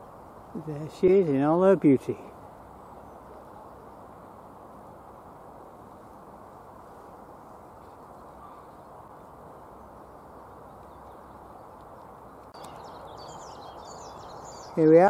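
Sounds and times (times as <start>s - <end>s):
low rush of background noise: 0.0s - 15.0s
faint bird call: 7.8s - 14.9s.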